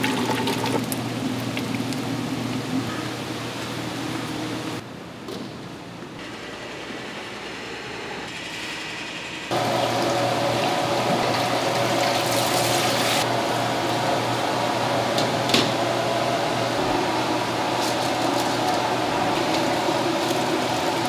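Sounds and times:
tap water running into pot: 0.0 - 1.0
steady hum: 5.8 - 21.0.

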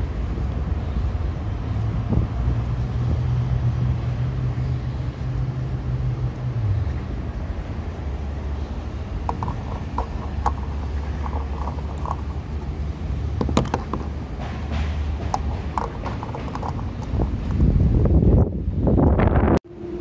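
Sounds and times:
fuel cap clicking: 9.2 - 12.7, 13.3 - 17.6.

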